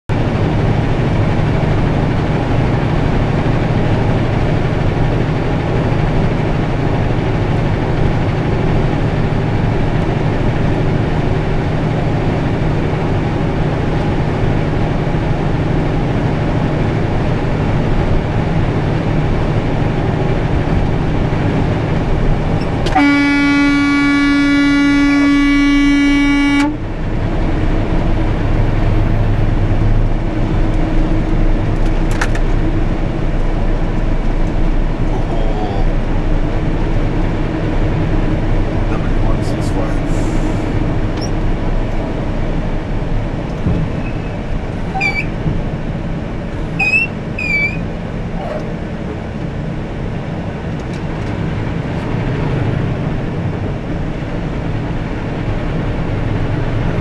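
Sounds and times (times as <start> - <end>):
truck engine and road noise: 0.1 - 57.0
vehicle horn: 22.8 - 26.8, 44.9 - 45.3, 46.7 - 47.8.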